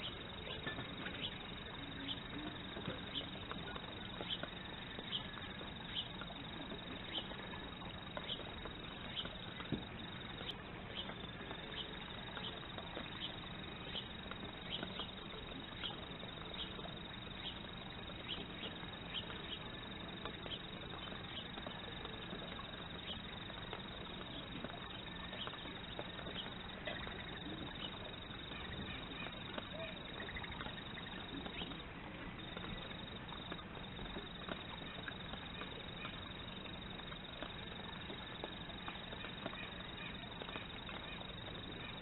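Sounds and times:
steady background hiss: 0:00.0 - 0:42.0.

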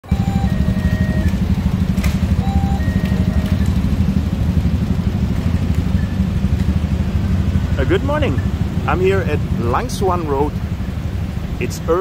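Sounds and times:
two-note electronic tone: 0:00.0 - 0:04.1
traffic rumble: 0:00.0 - 0:12.0.

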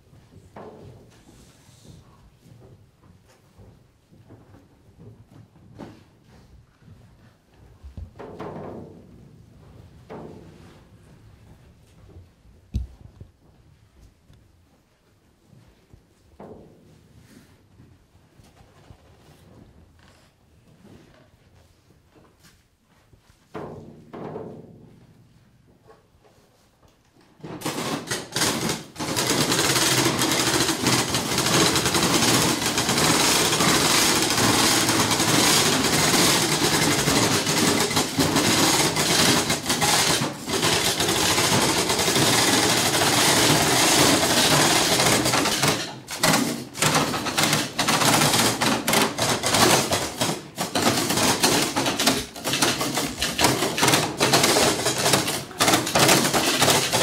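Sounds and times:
dense rattling clatter: 0:27.6 - 0:57.0.

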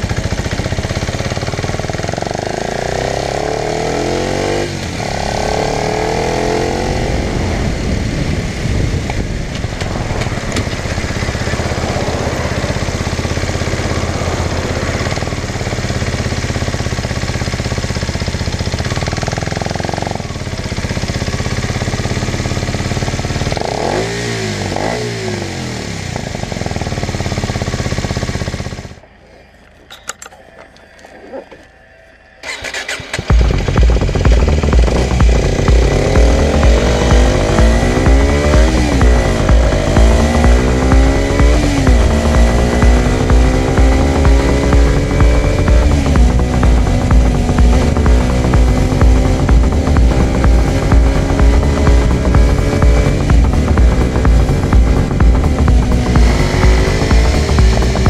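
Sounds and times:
motorcycle engine running: 0:00.0 - 0:58.0
road and wind noise: 0:00.0 - 0:58.0
clicks: 0:29.6 - 0:31.7.

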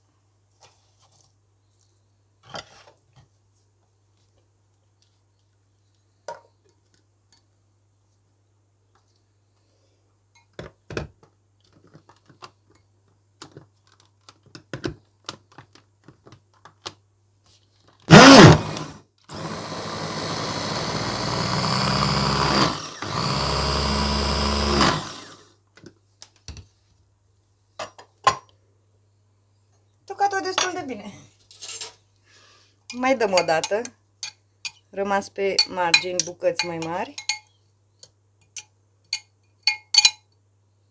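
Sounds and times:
electric chopper motor running: 0:18.1 - 0:25.4.

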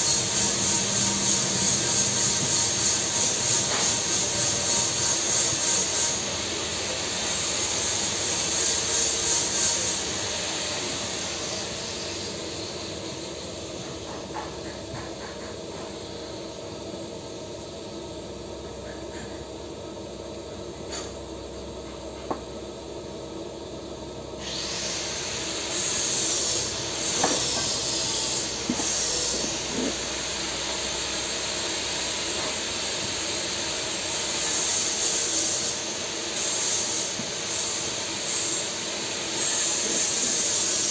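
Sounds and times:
welding arc hissing: 0:00.0 - 0:14.1, 0:24.4 - 0:40.9.

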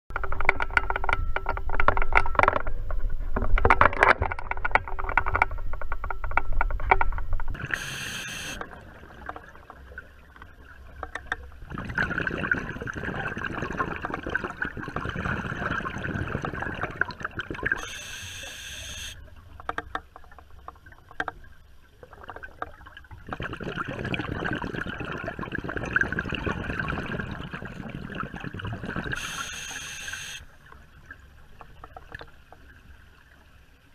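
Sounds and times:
muffled underwater rushing: 0:02.7 - 0:19.3.

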